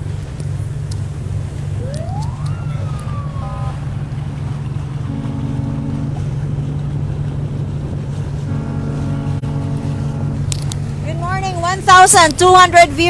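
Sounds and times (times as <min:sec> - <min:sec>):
motorboat engine running: 0:00.0 - 0:13.0
water rushing: 0:00.0 - 0:13.0
wind: 0:00.0 - 0:13.0
rising and falling tone: 0:01.8 - 0:03.8.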